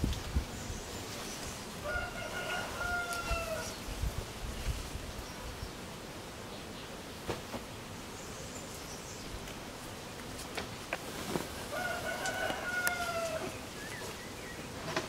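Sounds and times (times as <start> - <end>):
rooster crowing: 1.8 - 3.8, 11.6 - 13.6.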